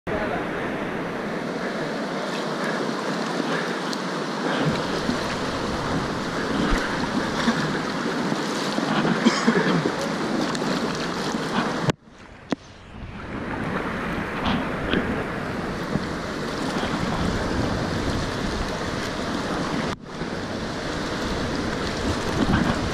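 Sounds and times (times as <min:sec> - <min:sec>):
river water rushing and splashing: 0:00.1 - 0:22.9
paddle splashes: 0:00.8 - 0:22.9
wind on microphone: 0:04.2 - 0:22.9.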